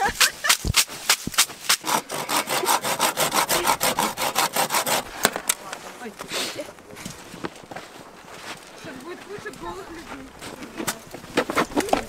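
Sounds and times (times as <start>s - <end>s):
leafy broom slapping on body: 0.0s - 1.9s.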